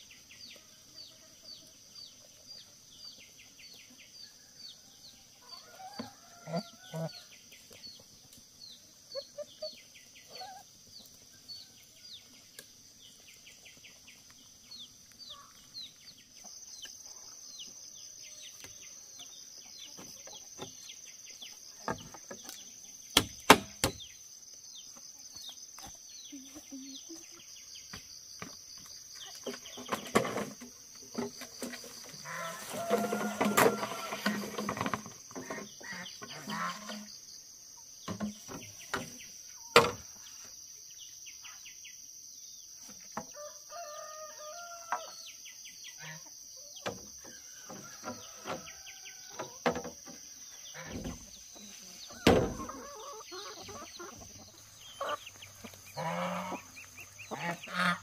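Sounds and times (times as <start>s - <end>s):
high insect drone: 0.0s - 58.0s
geese calling: 52.1s - 58.0s.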